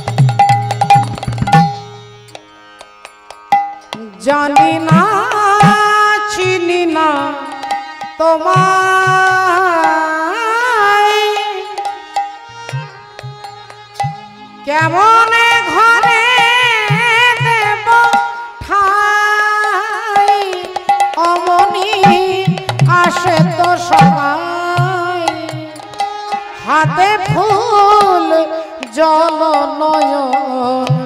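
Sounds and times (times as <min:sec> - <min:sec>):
hand drum strokes: 0:00.0 - 0:02.4
light percussion: 0:00.0 - 0:31.0.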